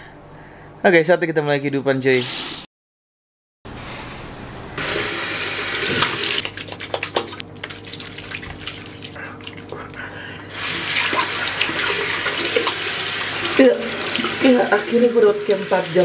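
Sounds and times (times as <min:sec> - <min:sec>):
water running from sink tap: 0:04.8 - 0:09.2, 0:10.5 - 0:16.0
water splashes and drips: 0:06.0 - 0:09.8, 0:10.5 - 0:16.0.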